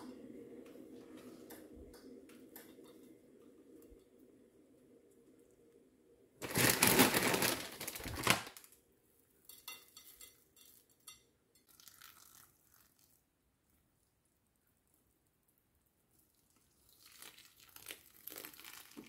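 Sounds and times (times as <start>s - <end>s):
loud crackling rustle: 6.4s - 8.7s.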